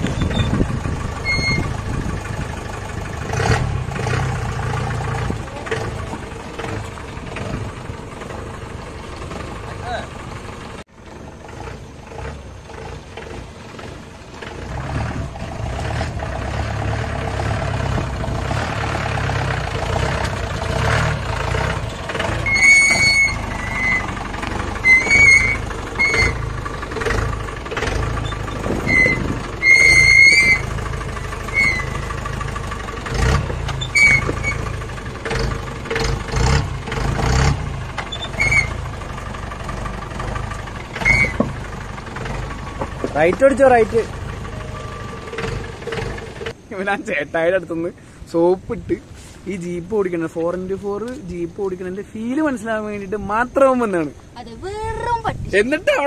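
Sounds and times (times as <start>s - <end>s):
short high squeaks: 0.0s - 1.8s, 22.4s - 26.5s, 28.2s - 30.8s, 31.4s - 32.1s, 33.6s - 34.8s, 38.0s - 38.8s, 40.9s - 41.5s
jeep engine driving: 0.0s - 56.0s.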